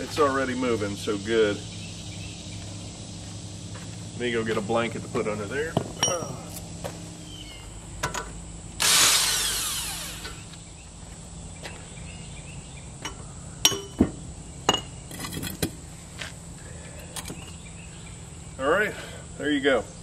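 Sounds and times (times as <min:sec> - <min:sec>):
cordless power tool whirring: 0:08.8 - 0:10.6.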